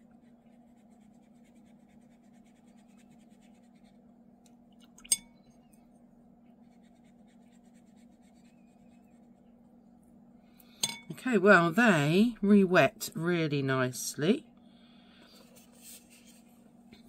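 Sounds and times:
paintbrush scratching on paper: 0.0 - 4.0, 6.6 - 9.5, 15.4 - 16.5
steady low hum: 0.0 - 17.0.

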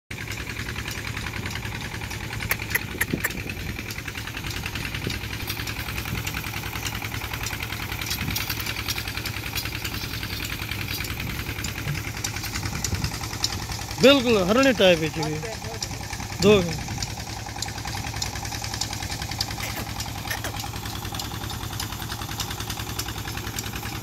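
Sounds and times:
engine running steadily: 0.1 - 24.0
sharp clicks: 2.2 - 5.6.

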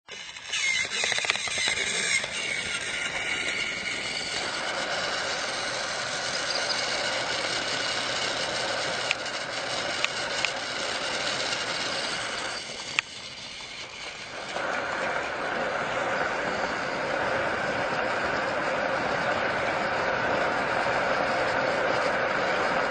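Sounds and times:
toy trains whirring and rattling: 0.0 - 22.9
sharp clicks: 0.1 - 4.5, 9.9 - 10.6.

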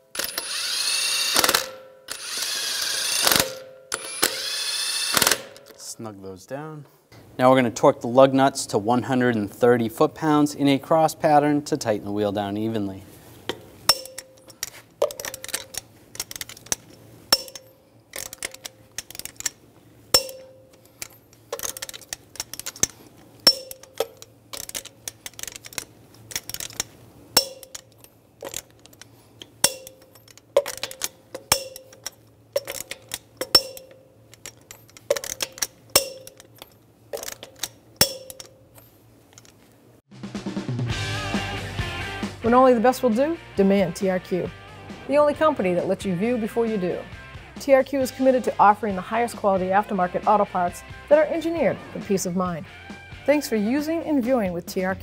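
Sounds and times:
torque wrench clicking: 0.1 - 5.8, 13.9 - 19.6, 20.2 - 39.6.

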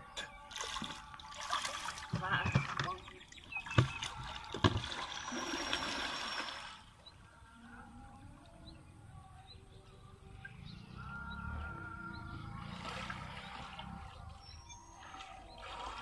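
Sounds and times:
water sloshing around wading person: 0.2 - 7.0, 12.4 - 16.0.

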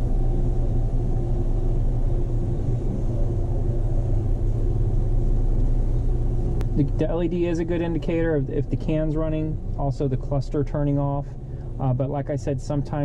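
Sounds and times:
machine humming and rumbling: 0.0 - 13.0.

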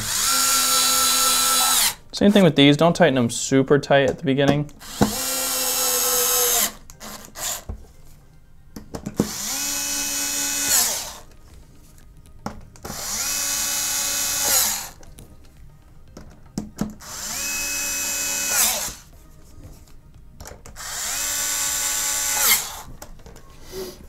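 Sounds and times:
electric screwdriver motor whine: 0.0 - 2.0, 4.8 - 7.7, 9.2 - 11.3, 12.9 - 15.0, 17.0 - 19.1, 20.8 - 22.9.

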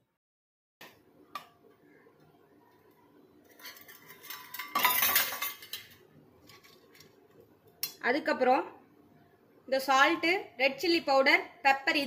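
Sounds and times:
metal kitchenware rattling: 3.4 - 7.1
metal cups clattering against bowl: 3.5 - 7.0.

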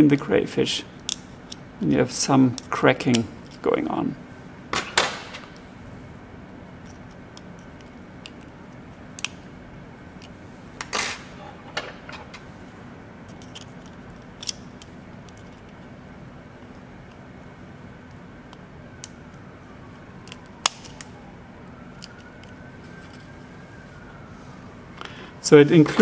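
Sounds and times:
scissors clicking and cracking shell: 9.2 - 9.4, 13.3 - 15.7, 20.2 - 21.1, 22.0 - 22.5.

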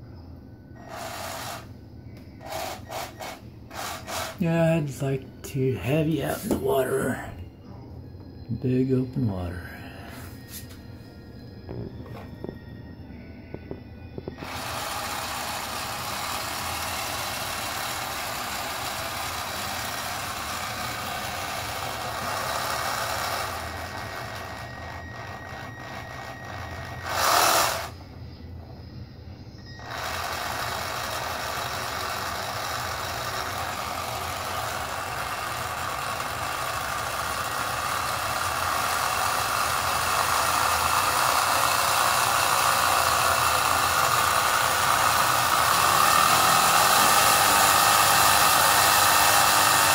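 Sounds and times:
model boat electric motor running: 0.8 - 1.7, 2.4 - 4.4, 14.3 - 28.0, 29.6 - 49.9.

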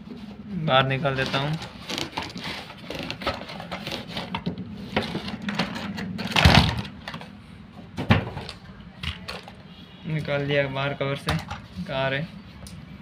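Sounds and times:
cardboard and plastic packaging rustling: 0.0 - 9.6.

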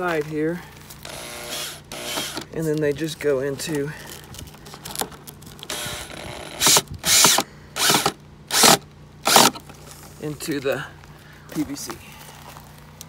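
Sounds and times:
cordless drill driving screw: 1.0 - 2.5, 5.7 - 9.6.

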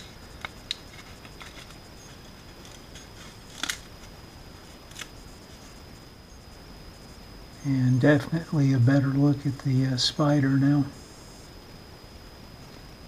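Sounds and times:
paper loudspeaker cone crackling: 0.0 - 4.1.

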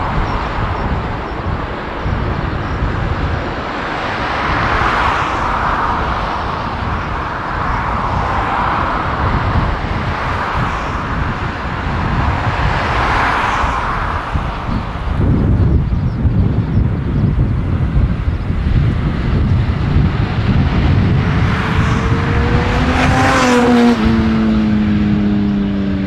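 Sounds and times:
jet engines at takeoff: 0.0 - 26.0.

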